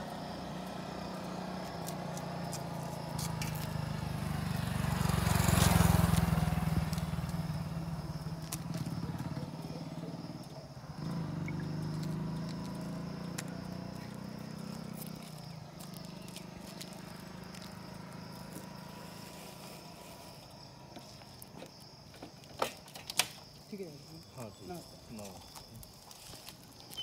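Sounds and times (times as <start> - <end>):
engine running low: 0.0 - 21.6
high-pitched insect trill: 0.0 - 27.0.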